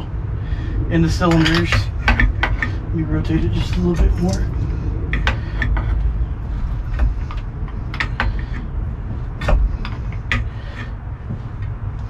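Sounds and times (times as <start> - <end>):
low rumble: 0.0 - 12.0
metallic clicks and clunks: 1.2 - 6.0.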